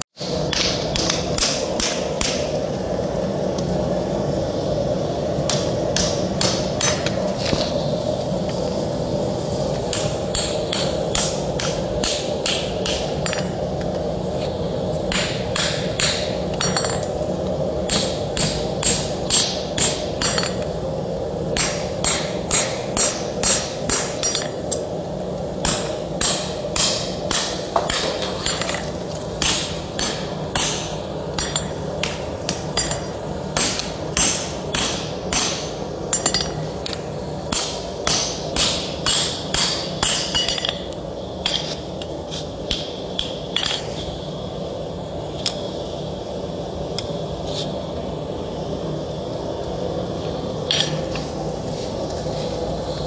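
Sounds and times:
steady low hum: 0:00.0 - 0:53.0
hammer striking hot steel: 0:00.2 - 0:03.7, 0:05.3 - 0:07.8, 0:09.6 - 0:14.1, 0:14.9 - 0:20.8, 0:21.4 - 0:46.1, 0:50.2 - 0:51.4.

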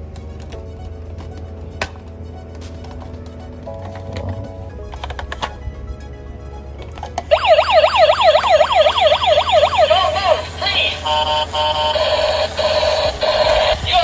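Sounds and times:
toy siren wail: 0:07.3 - 0:13.9.

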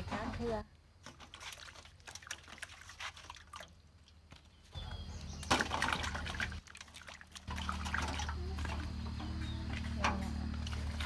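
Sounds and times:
steady low hum: 0:07.5 - 0:11.0.

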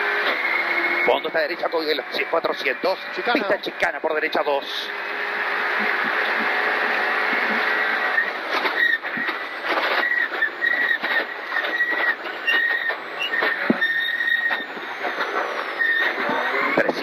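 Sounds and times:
car engine running hard: 0:00.0 - 0:17.0
tyre and road noise: 0:00.0 - 0:17.0
short high whistles: 0:10.0 - 0:14.7.

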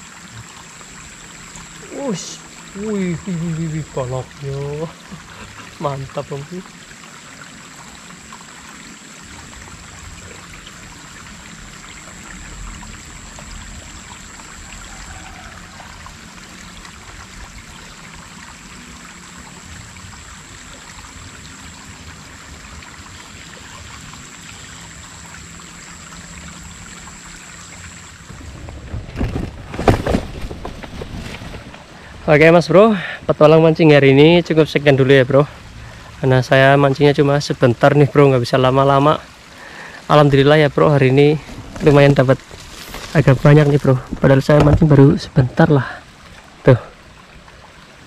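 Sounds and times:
stream water over stones: 0:00.0 - 0:48.0
microphone handling noise: 0:28.3 - 0:31.8.

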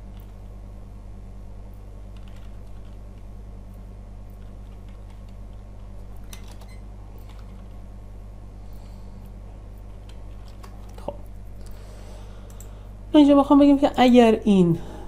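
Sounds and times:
computer keyboard keys tapping: 0:00.0 - 0:00.5, 0:02.1 - 0:07.8, 0:09.8 - 0:11.2
low electrical hum: 0:00.0 - 0:15.0.

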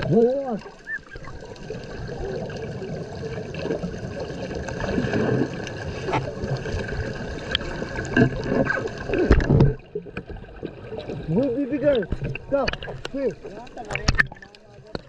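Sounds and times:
muffled water sloshing underwater: 0:00.0 - 0:15.0
swimmers kicking and splashing: 0:03.4 - 0:15.0.

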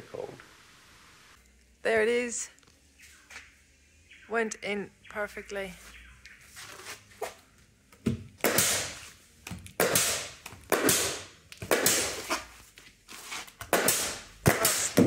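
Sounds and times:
pneumatic nail gun firing: 0:08.4 - 0:09.0, 0:09.8 - 0:12.4, 0:13.7 - 0:15.0.

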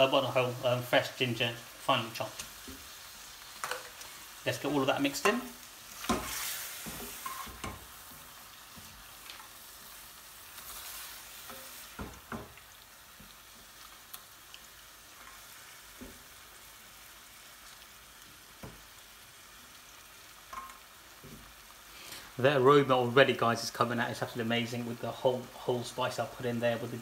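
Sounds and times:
meat sizzling in a pan: 0:00.0 - 0:27.0
spatula scraping a pan: 0:05.2 - 0:07.9.

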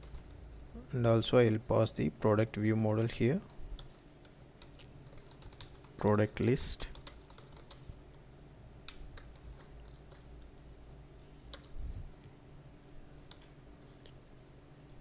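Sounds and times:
computer keyboard keystrokes: 0:00.0 - 0:00.3, 0:03.5 - 0:06.1, 0:06.8 - 0:07.9, 0:08.8 - 0:10.6, 0:11.5 - 0:11.8, 0:13.2 - 0:14.2.

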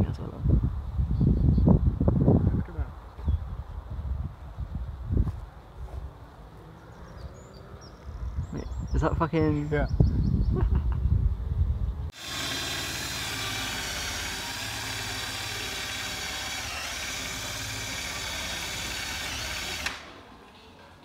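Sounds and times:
power drill motor whine: 0:12.1 - 0:20.2.

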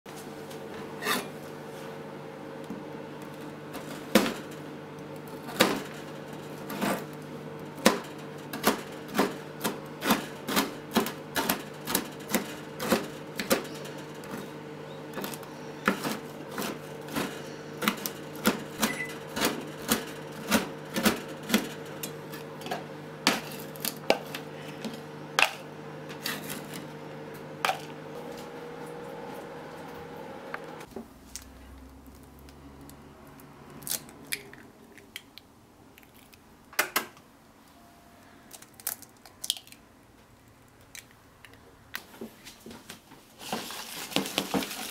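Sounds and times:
steady low hum: 0:00.1 - 0:34.8.

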